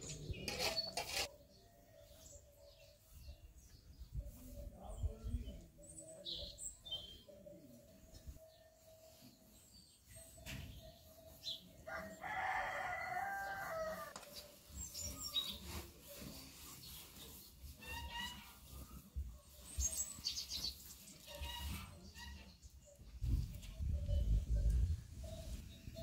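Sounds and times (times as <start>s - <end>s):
small birds chirping: 0.0s - 26.0s
rooster crowing: 11.9s - 14.2s.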